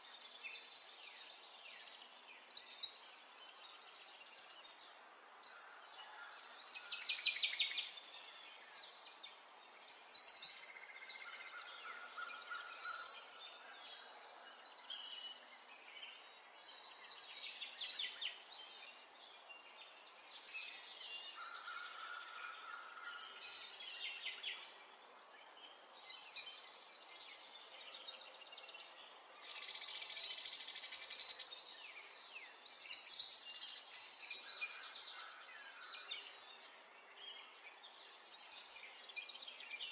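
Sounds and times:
small birds chirping and trilling: 0.0 - 39.9.

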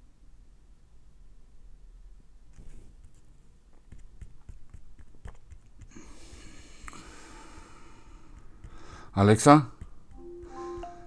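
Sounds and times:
soft drawn-out breath: 5.8 - 9.2, 10.4 - 11.0.

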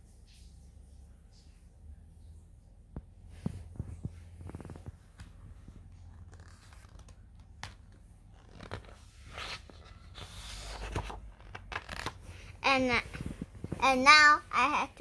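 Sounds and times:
book page turning: 3.4 - 14.0.

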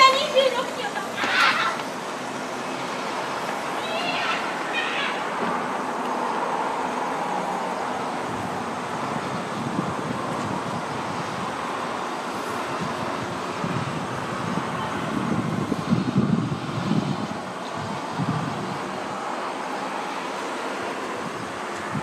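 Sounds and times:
distant city traffic: 0.0 - 22.0.

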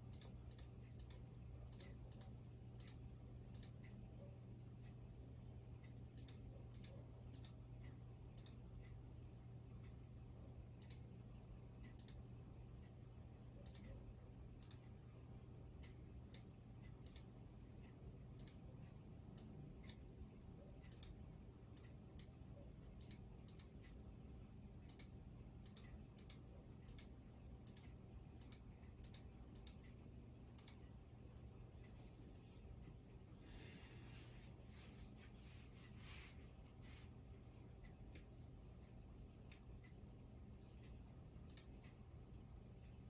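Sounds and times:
computer mouse clicking: 0.0 - 5.0, 5.8 - 9.0, 10.7 - 15.0, 15.7 - 31.0, 40.7 - 42.0
low steady hum: 0.0 - 43.0.

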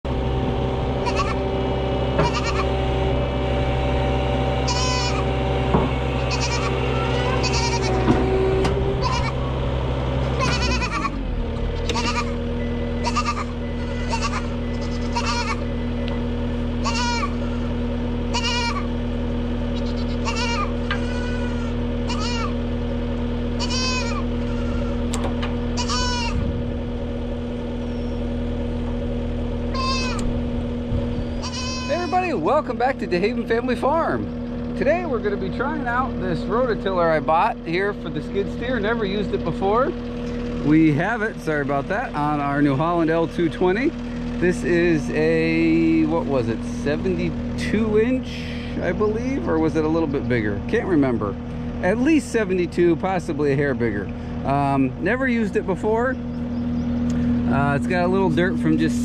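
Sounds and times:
diesel engine idling: 0.0 - 59.0
low mechanical hum: 0.0 - 59.0
goats bleating: 1.0 - 1.4, 2.2 - 2.8, 4.6 - 5.4, 6.1 - 9.5, 10.2 - 15.7, 16.7 - 19.0, 19.7 - 22.6, 23.5 - 25.1, 25.7 - 26.4, 29.7 - 30.3, 31.3 - 32.4.

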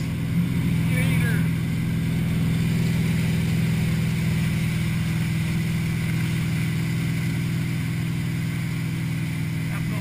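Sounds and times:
boat engine running: 0.0 - 10.0
churning wake water: 0.0 - 10.0.

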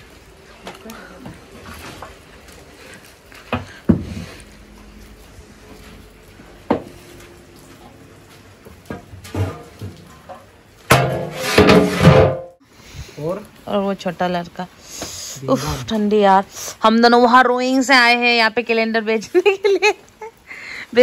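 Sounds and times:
wooden paddle knocking metal pot: 8.9 - 12.6
metal lid clattering: 9.3 - 12.5.

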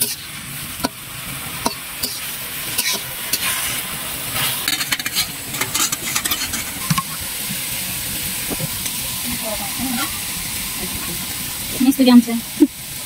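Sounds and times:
spatula scraping a pan: 0.0 - 1.0, 1.6 - 7.2
curry sizzling in a pan: 0.0 - 13.0.

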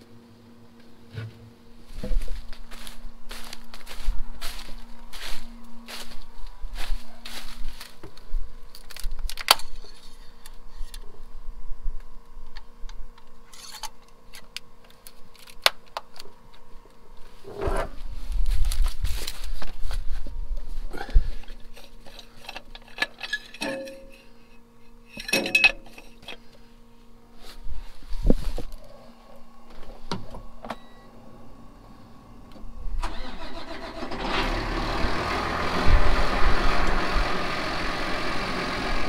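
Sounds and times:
faint steady hum: 0.0 - 39.0
tools clicking and knocking: 21.7 - 24.3, 25.1 - 26.4.

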